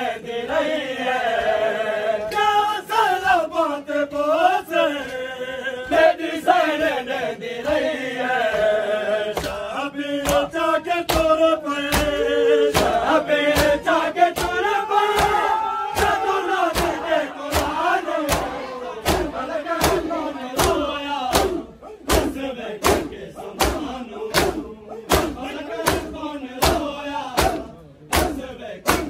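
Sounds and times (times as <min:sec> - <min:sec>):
men chanting a lament: 0:00.0 - 0:29.0
chest-beating slaps: 0:09.4 - 0:09.6, 0:10.2 - 0:10.5, 0:11.1 - 0:29.0.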